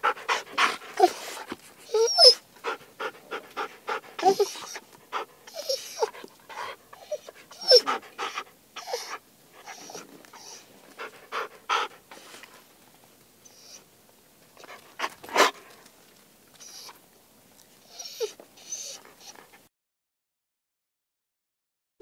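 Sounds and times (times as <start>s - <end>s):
dog panting: 0.0s - 12.7s, 14.6s - 15.9s, 17.9s - 19.6s
dog whining: 0.3s - 10.7s, 13.5s - 13.9s, 16.6s - 17.0s, 17.9s - 19.5s.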